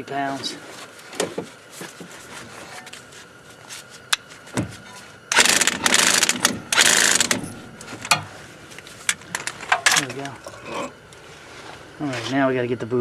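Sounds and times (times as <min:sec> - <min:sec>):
impact wrench hammering: 0:05.3 - 0:08.3.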